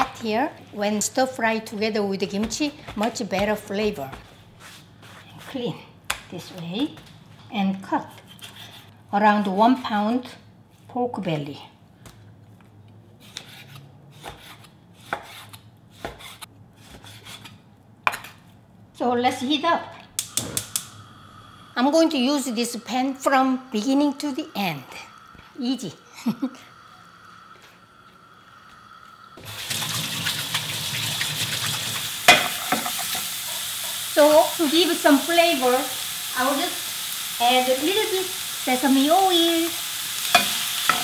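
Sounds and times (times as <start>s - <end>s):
meat sizzling in a frying pan: 29.5s - 41.0s.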